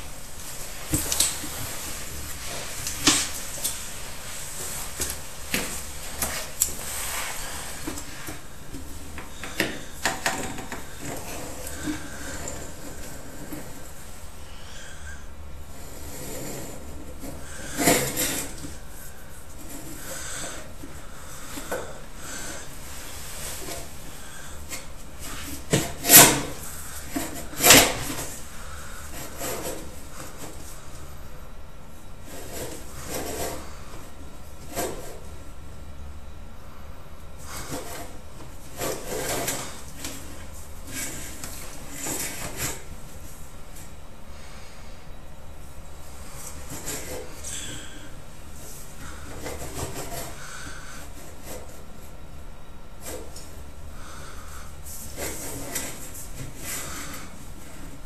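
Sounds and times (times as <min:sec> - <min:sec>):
steady hiss: 0:00.0 - 0:15.8
steady low hum: 0:00.0 - 0:58.0.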